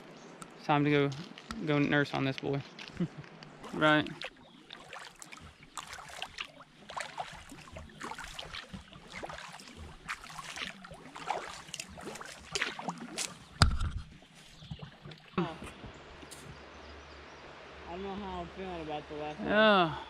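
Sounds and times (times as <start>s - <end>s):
paddle splashes and drips: 2.8s - 16.6s.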